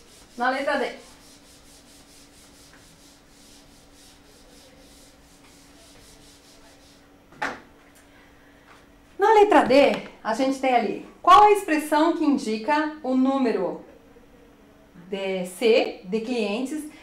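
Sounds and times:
rubbing on whiteboard: 0.0 - 7.1.

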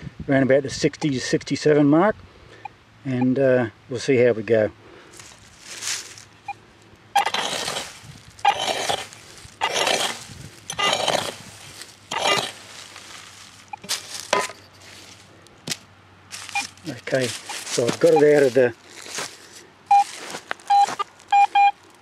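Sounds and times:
digging tool striking dry soil: 7.2 - 14.7.

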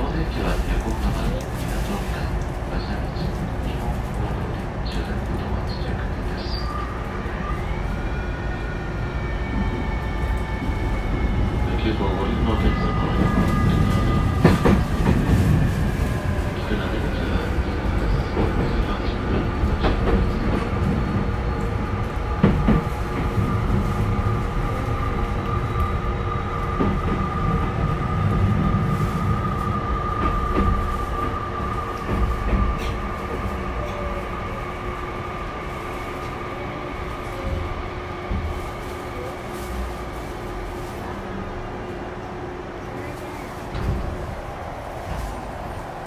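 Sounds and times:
train wheels on rail: 0.0 - 46.0
rail joint clicks: 11.3 - 34.6.

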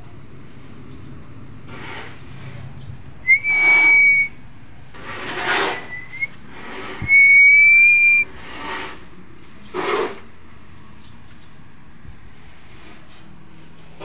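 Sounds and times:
whistling notes: 3.2 - 4.4, 5.7 - 6.4, 7.0 - 8.3.

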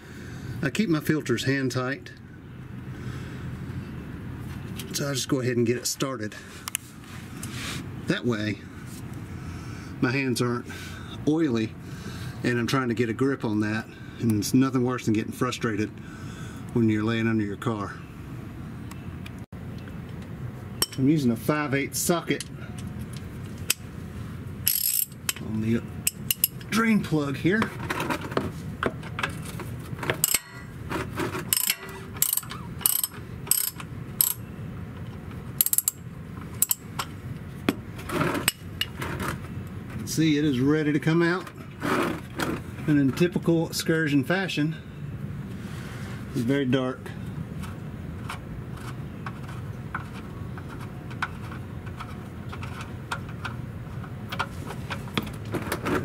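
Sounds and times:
ratchet pawl clicking: 24.7 - 25.4, 31.5 - 34.4, 35.6 - 36.0.

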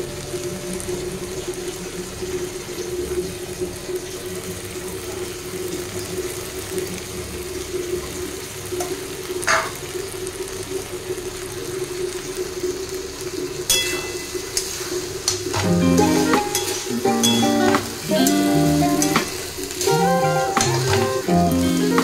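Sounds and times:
food sizzling in a pan: 5.2 - 22.0.

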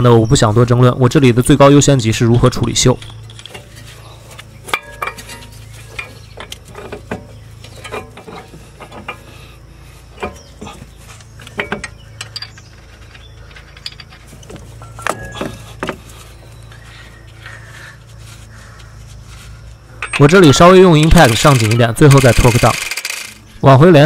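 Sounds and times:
steady low hum: 0.0 - 24.0
metal clicks and knocks: 4.7 - 9.3, 10.2 - 16.0, 19.9 - 23.4.

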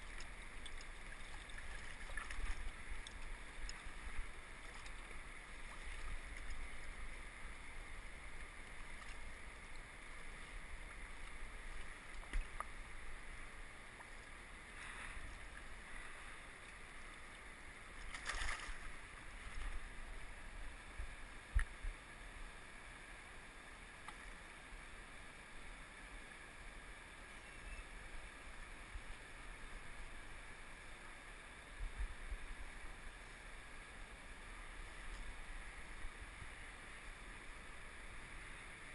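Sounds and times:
river water flowing: 0.0 - 27.3.

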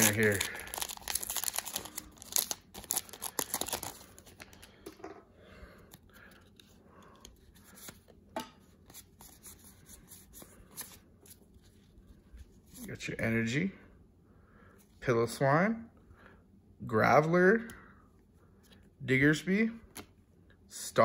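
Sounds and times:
foil wrapper crinkling and tearing: 0.0 - 4.7.

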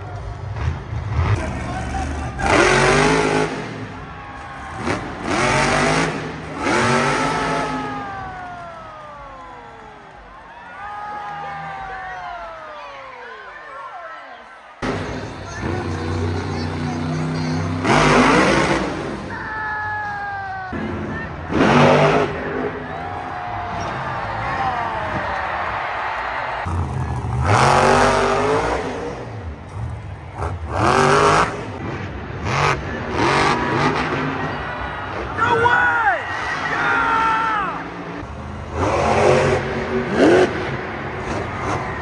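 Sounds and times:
truck engine revving: 0.2 - 9.4, 14.8 - 19.3, 20.7 - 23.0, 26.5 - 35.4, 36.3 - 42.0.

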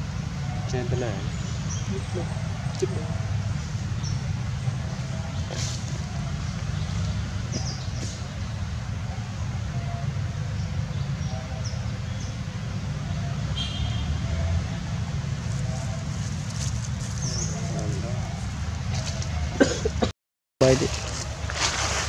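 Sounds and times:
low outdoor rumble: 14.0 - 22.0.

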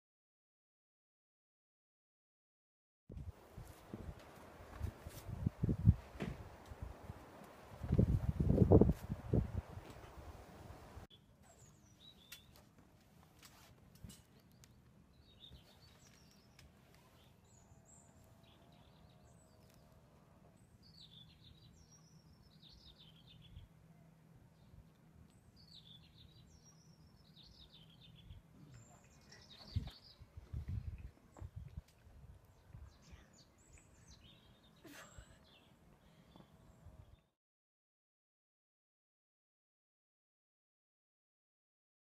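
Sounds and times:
faint birds chirping: 3.4 - 12.9, 13.9 - 37.3.

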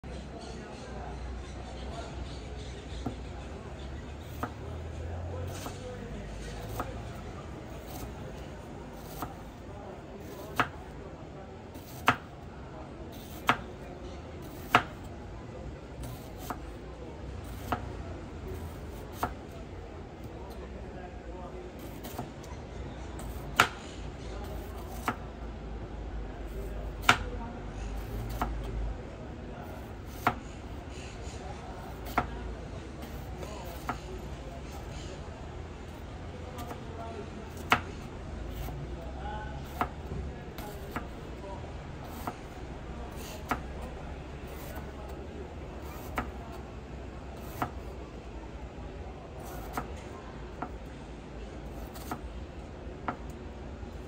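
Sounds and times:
knife slicing onion on cutting board: 4.2 - 4.6, 5.4 - 5.8, 6.4 - 9.6, 10.2 - 10.9, 11.7 - 12.3, 13.1 - 13.8, 14.4 - 15.1, 16.0 - 16.8, 17.4 - 18.0, 18.6 - 19.5, 21.7 - 22.5, 23.2 - 25.3, 26.5 - 28.7, 29.7 - 32.4, 33.0 - 34.1, 35.9 - 36.9, 37.5 - 38.8, 39.6 - 41.1, 42.0 - 44.9, 45.7 - 46.6, 47.3 - 47.9, 49.4 - 50.0, 51.7 - 52.3.

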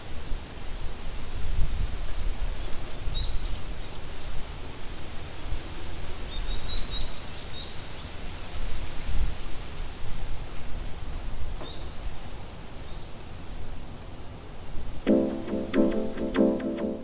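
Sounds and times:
wind rumble on microphone: 0.4 - 3.7.

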